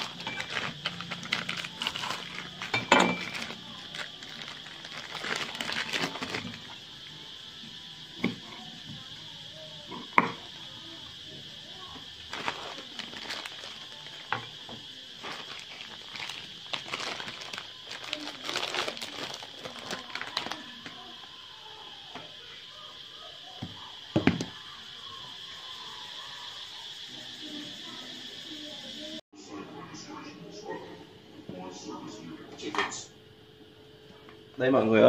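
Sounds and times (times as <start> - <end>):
plastic packaging crinkling: 0.0 - 6.8, 12.2 - 14.5, 15.2 - 21.0
high-pitched hiss: 0.0 - 29.2.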